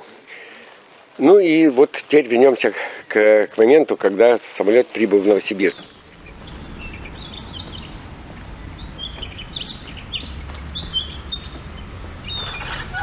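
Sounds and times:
small birds chirping: 5.2s - 13.0s
low background rumble: 5.8s - 13.0s.

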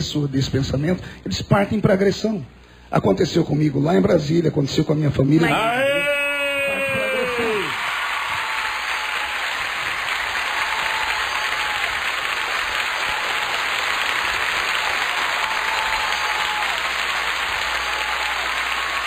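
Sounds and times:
audience applauding: 6.6s - 19.0s.

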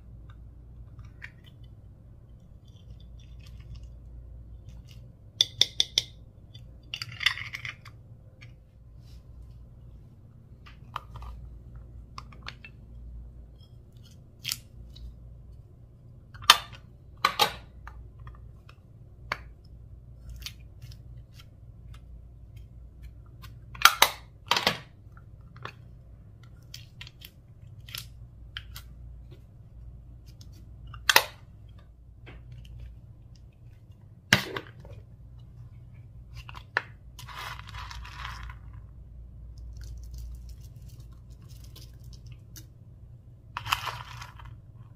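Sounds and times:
slime squishing with pops and clicks: 0.1s - 6.9s.

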